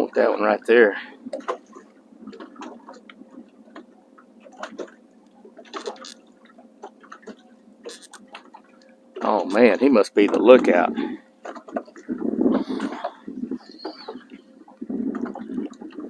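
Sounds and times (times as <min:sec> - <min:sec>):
waves slapping boat hull: 0:00.0 - 0:16.0.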